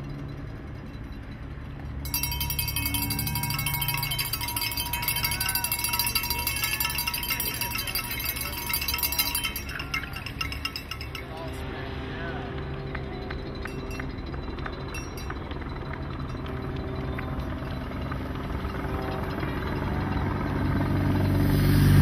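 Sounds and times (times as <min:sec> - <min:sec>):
rapid chiming and clinking: 0:00.0 - 0:21.4.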